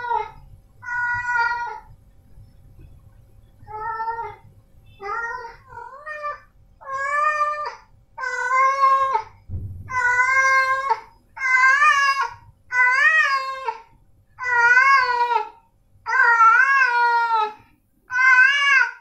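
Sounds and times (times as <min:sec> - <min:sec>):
cat meowing loudly: 0:09.9 - 0:13.8, 0:16.1 - 0:19.0.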